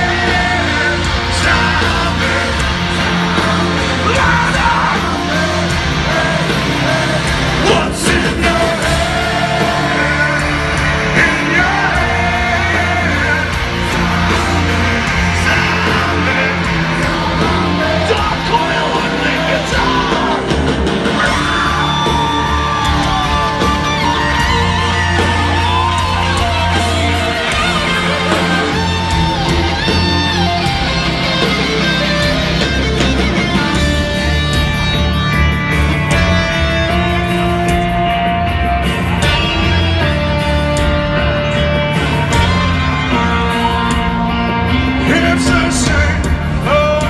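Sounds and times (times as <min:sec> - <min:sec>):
man singing: 0:00.0 - 0:26.8, 0:44.9 - 0:47.0
heavy rock band playing live: 0:00.0 - 0:47.0.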